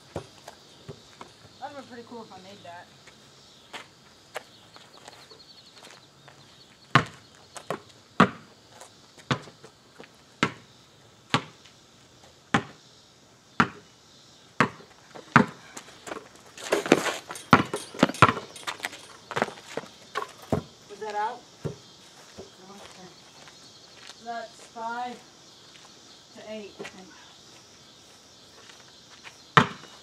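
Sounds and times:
basketball bouncing on asphalt: 0:00.0 - 0:01.6, 0:06.9 - 0:08.6, 0:09.2 - 0:10.7, 0:11.3 - 0:11.8, 0:12.5 - 0:12.8, 0:13.6 - 0:13.9, 0:14.6 - 0:20.8, 0:21.6 - 0:22.6, 0:29.6 - 0:30.0.

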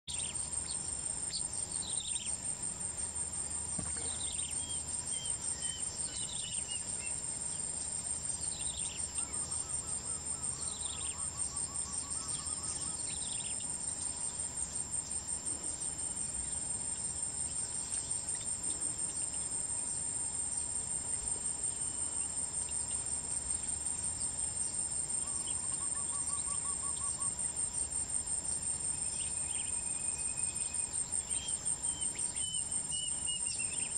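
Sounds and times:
high-pitched insect chorus: 0:00.1 - 0:33.9.

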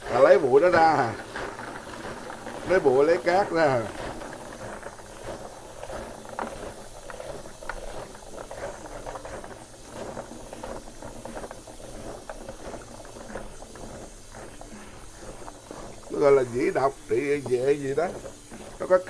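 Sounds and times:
small crackles: 0:00.0 - 0:19.0
water sloshing in a bowl: 0:00.0 - 0:19.0.

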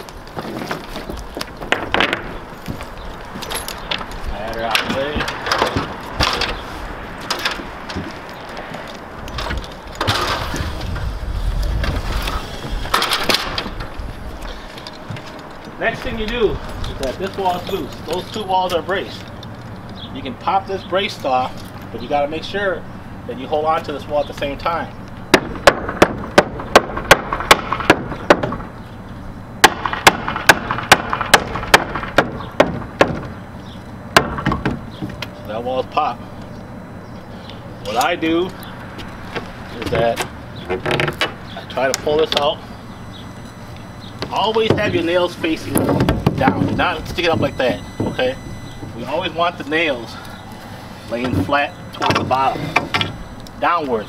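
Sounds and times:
hammer striking wood: 0:25.3 - 0:28.6, 0:29.6 - 0:33.3, 0:34.2 - 0:34.8.

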